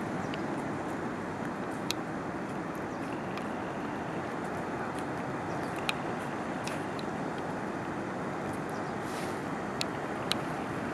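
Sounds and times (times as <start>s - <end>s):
outdoor ambient rush: 0.0s - 10.9s
faint sharp clicks: 2.8s - 3.6s, 4.9s - 6.0s, 9.8s - 10.5s.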